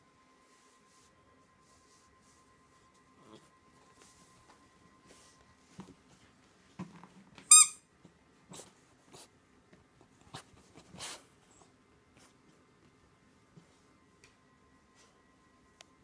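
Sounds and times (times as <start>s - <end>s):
squeak toy squeaking: 7.5s - 7.8s.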